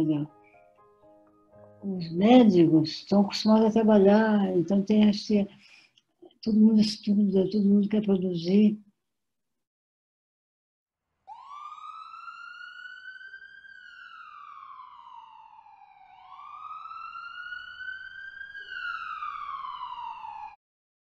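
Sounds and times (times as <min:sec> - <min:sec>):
emergency siren wailing: 0:11.3 - 0:20.6.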